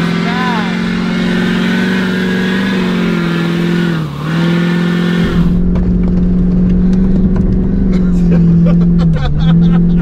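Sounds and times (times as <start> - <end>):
truck engine revving: 0.0 - 10.0.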